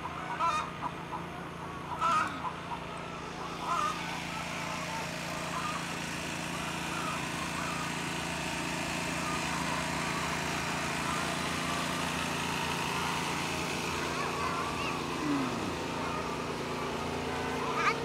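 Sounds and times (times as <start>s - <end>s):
hen calls: 0.0s - 5.9s
small engine running: 0.0s - 18.0s.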